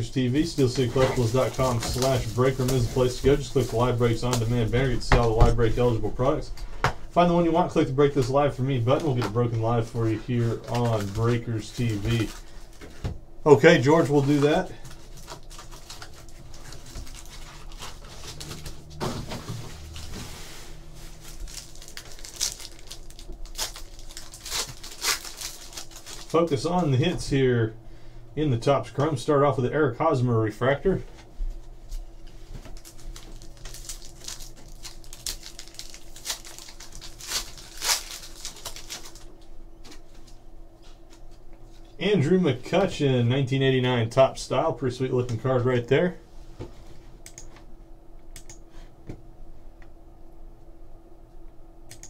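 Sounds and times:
foil packs rustling and crinkling: 0.0s - 6.7s, 7.5s - 27.0s, 31.9s - 40.3s
foil pack tearing open: 0.4s - 4.8s, 10.4s - 12.6s, 14.0s - 19.0s, 21.2s - 26.6s, 32.7s - 39.3s.

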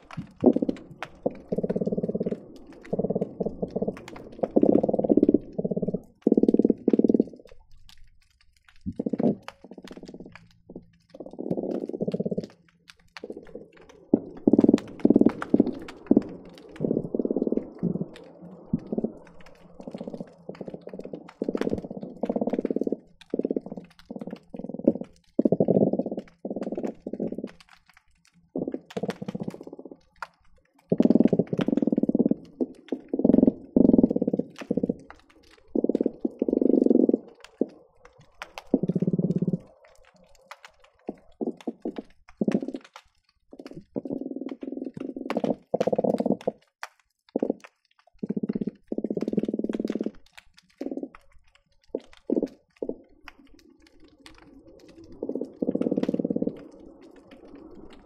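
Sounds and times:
fish croaking underwater: 0.0s - 58.0s.

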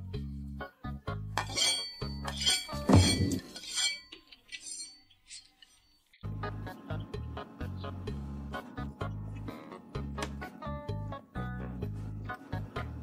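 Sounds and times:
chopsticks clinking on plates: 1.4s - 5.9s.

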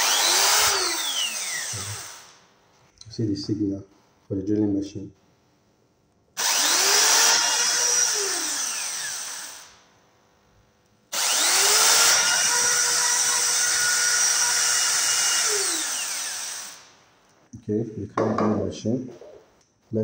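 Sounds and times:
electric drill whining: 0.0s - 2.4s, 6.4s - 9.8s, 11.1s - 16.9s.

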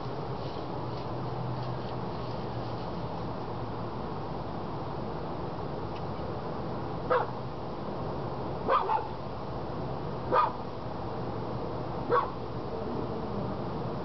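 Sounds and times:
steady background noise: 0.0s - 14.0s
dog barking: 7.1s - 7.4s, 8.7s - 9.1s, 10.3s - 10.6s, 12.1s - 12.4s.

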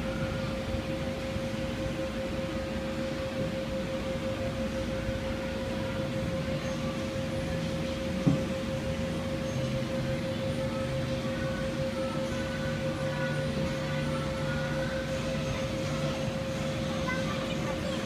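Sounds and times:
electric carousel humming: 0.0s - 18.0s.

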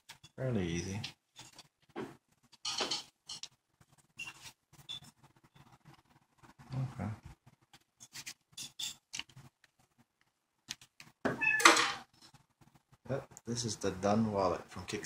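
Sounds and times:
cat meowing: 11.4s - 11.8s.

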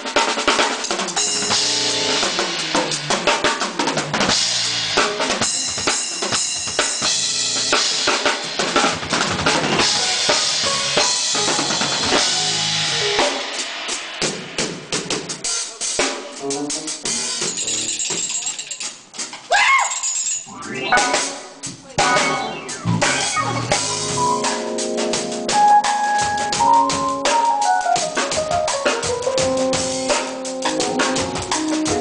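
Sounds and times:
drum kit playing groove: 0.0s - 19.6s, 20.3s - 32.0s
organ chords: 1.2s - 3.0s, 9.4s - 13.5s, 20.5s - 32.0s.

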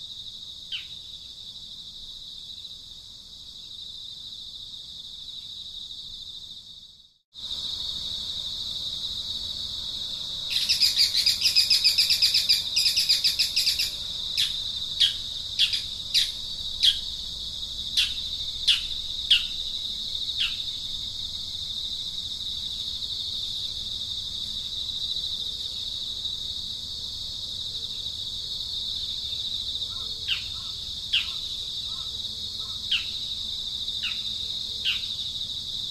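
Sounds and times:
insects trilling: 0.0s - 35.9s
bird chirping: 10.5s - 17.1s, 18.0s - 19.6s, 29.9s - 33.3s.

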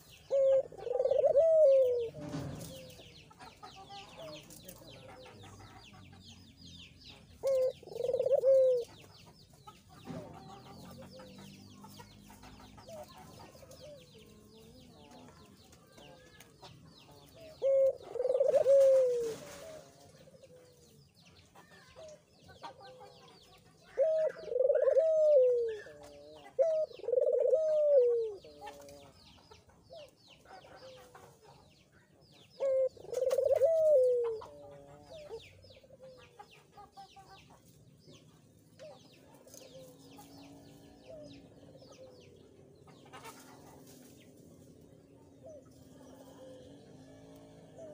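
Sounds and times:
dove cooing: 0.0s - 3.1s, 7.4s - 9.0s, 17.4s - 20.8s, 23.8s - 29.2s, 32.6s - 36.3s, 38.8s - 43.9s, 45.2s - 47.9s
small birds chirping faintly: 0.0s - 47.9s.

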